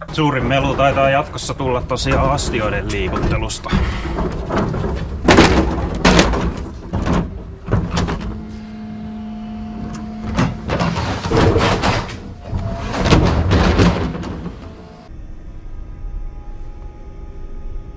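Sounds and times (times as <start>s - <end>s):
wheelie bin rattling on pavement: 0.0s - 8.5s
hydraulic pump hum: 0.0s - 17.9s.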